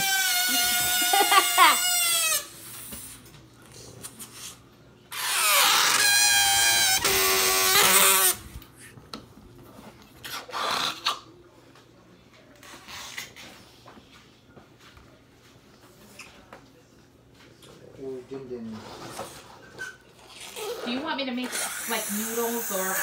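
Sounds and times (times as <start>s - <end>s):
balloon squealing: 0.0s - 2.5s, 5.1s - 8.5s, 19.8s - 23.0s.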